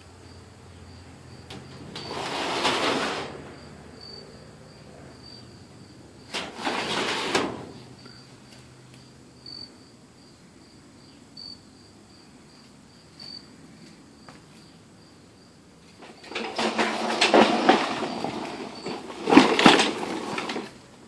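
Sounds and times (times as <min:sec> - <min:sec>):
metal door swinging open: 0:01.5 - 0:03.5, 0:06.3 - 0:08.0.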